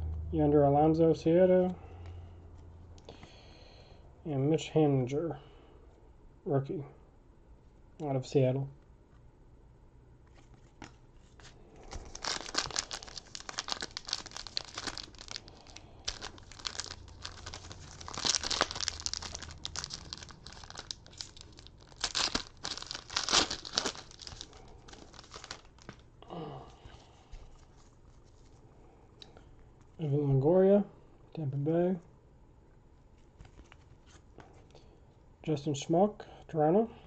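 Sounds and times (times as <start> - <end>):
foil wrapper tearing and crinkling: 11.8 - 26.0.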